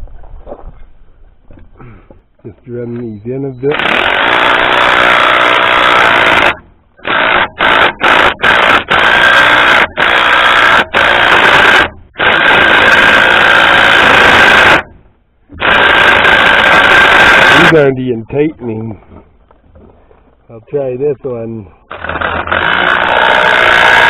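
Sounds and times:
power tool whining: 3.6 - 14.9, 15.5 - 17.8, 21.9 - 24.0.

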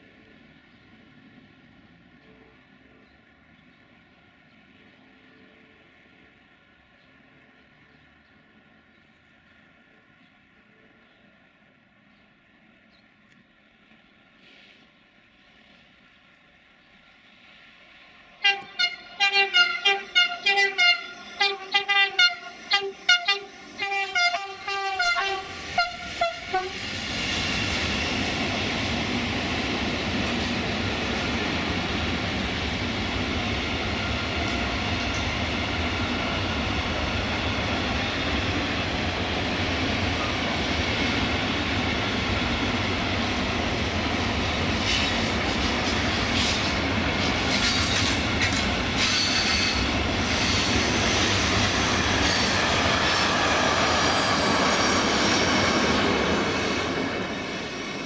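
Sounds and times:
locomotive horn blasts: 18.4 - 26.8.

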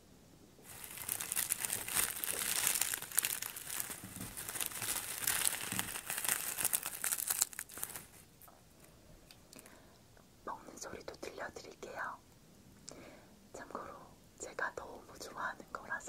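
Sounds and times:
dry seaweed sheets crumpling: 0.6 - 8.3.

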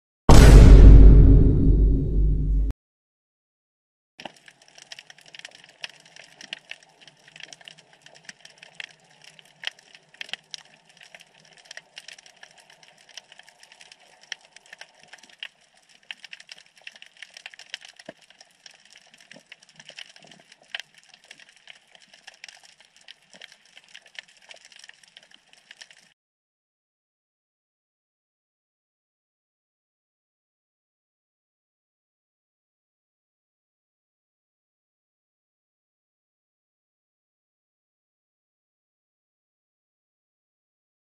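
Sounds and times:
underwater crackle of tiny clicks: 4.2 - 26.2.

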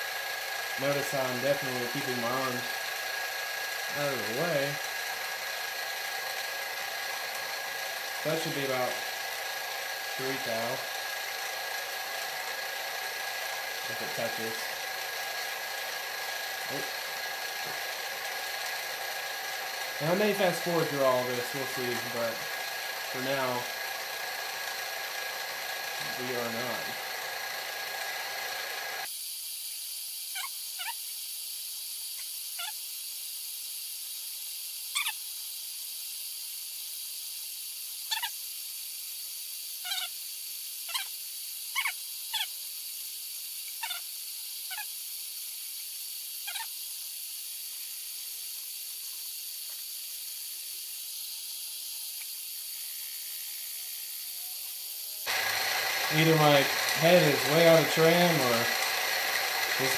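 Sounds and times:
cutter chirping on metal: 0.0 - 29.1, 38.0 - 38.4, 43.6 - 47.2, 48.9 - 59.9
mill spindle humming and hissing: 0.0 - 59.9.

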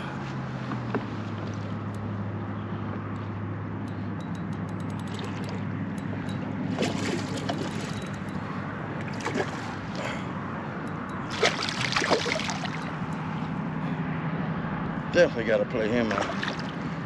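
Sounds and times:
wind: 0.0 - 17.0
water splashing around kayak: 5.0 - 10.2, 11.3 - 13.5, 15.9 - 17.0.

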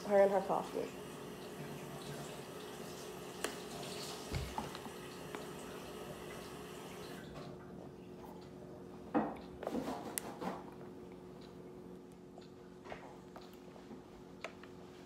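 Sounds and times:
water running from a tap: 0.1 - 7.3.

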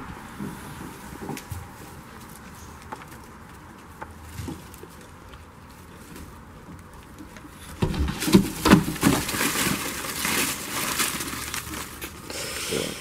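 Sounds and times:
dry leaves rustling and crackling: 0.0 - 13.0
twigs snapping: 8.2 - 12.3.

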